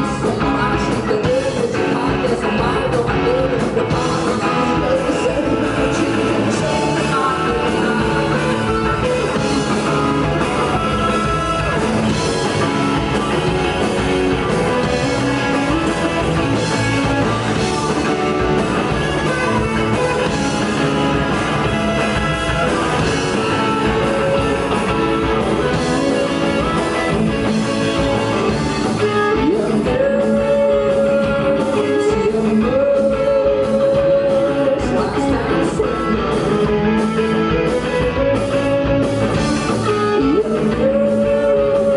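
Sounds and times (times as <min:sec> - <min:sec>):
rock band playing live: 0:00.0 - 0:41.9
lead guitar held notes: 0:07.1 - 0:32.2.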